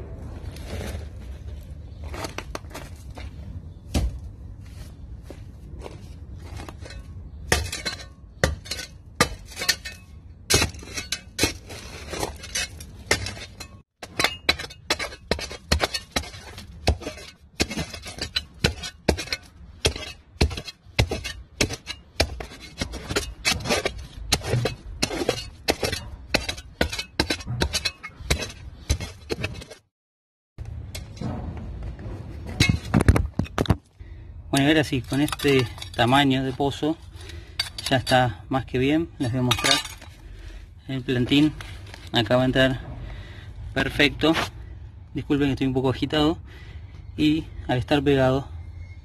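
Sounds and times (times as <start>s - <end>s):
shovel digging into rubble: 6.4s - 29.8s, 34.6s - 36.5s.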